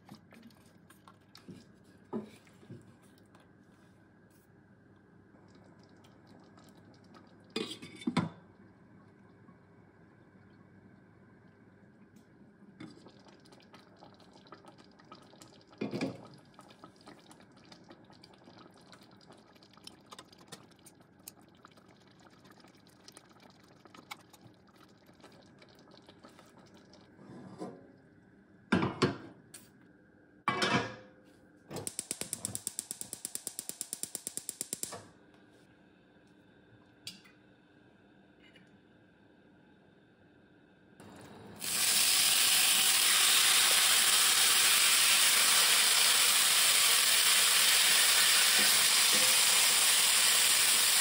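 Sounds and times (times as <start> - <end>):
sauce bubbling in a saucepan: 4.6 - 27.2
rapid sharp clicks: 31.9 - 35.0.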